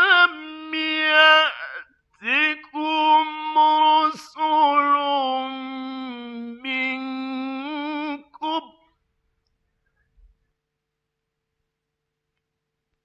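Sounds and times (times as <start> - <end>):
man chanting melodically: 0.0 - 8.9.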